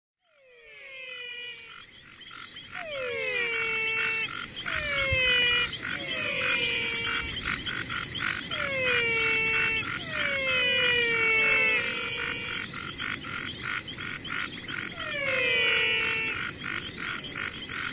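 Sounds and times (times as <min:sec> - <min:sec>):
high insect-like drone: 0:00.2 - 0:17.9
animal calls gliding downward: 0:02.7 - 0:12.7, 0:14.8 - 0:16.5.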